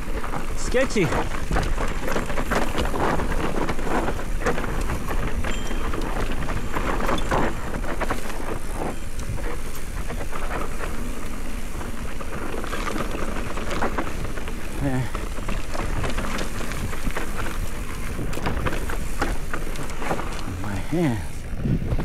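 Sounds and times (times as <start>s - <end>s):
bike rattling: 0.0s - 22.0s
tyres crunching on dirt: 0.0s - 22.0s
wind buffeting microphone: 0.0s - 22.0s.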